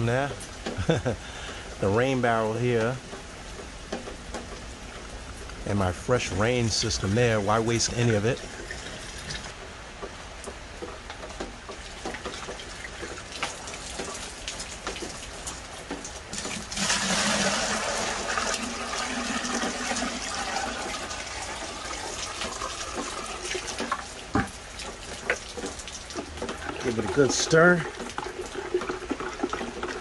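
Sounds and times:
light rain patter: 0.0s - 30.0s
water pouring into bucket: 8.1s - 9.5s, 12.3s - 30.0s.

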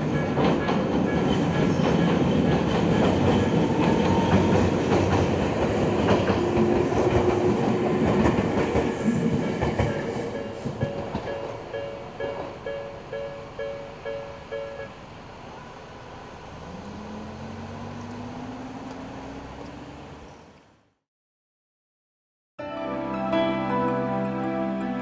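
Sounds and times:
train rumbling over steel bridge: 0.0s - 20.6s
crossing alarm bell ringing: 9.4s - 15.0s.

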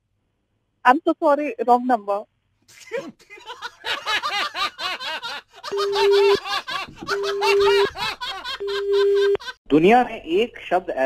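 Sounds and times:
men laughing: 2.7s - 9.6s
electronic beeps: 5.7s - 6.4s, 7.1s - 8.0s.

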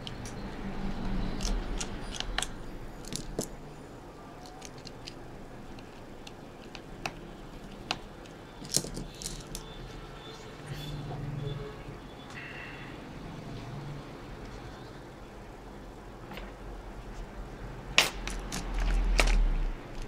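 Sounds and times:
small metal parts clicking: 0.0s - 3.6s, 4.4s - 9.8s.

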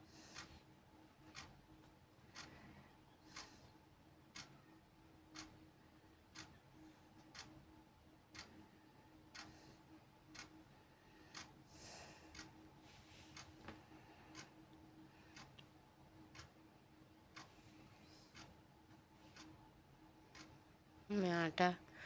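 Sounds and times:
faint steady hum: 0.0s - 22.0s
clock ticking: 0.3s - 0.6s, 1.2s - 2.6s, 3.3s - 3.7s, 4.3s - 5.7s, 6.3s - 11.6s, 12.3s - 12.8s, 13.4s - 17.5s, 18.1s - 21.8s
soft rustle: 12.8s - 13.9s.

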